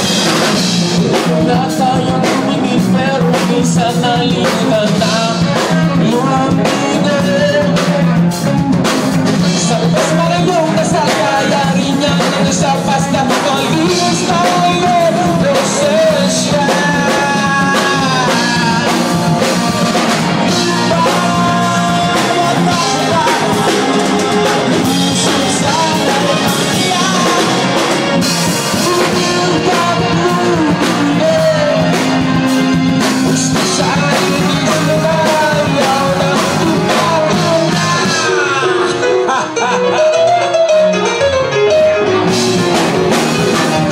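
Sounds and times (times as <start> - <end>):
drum kit: 0.0 - 43.9
guitar: 0.0 - 43.9
keyboard: 0.0 - 43.9
person singing: 0.0 - 43.9.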